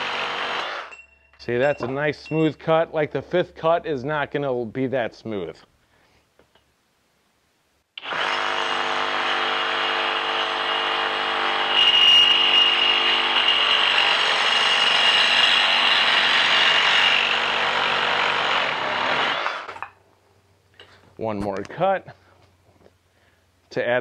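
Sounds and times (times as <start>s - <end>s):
high ringing tone from blade: 0.9s - 2.5s, 11.8s - 12.9s
reciprocating saw cutting metal pipe: 8.0s - 19.8s.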